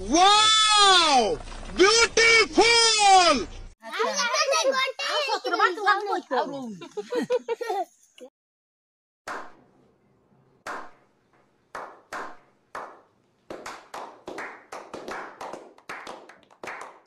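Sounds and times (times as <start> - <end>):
people clapping: 10.7 - 11.0, 11.7 - 17.0.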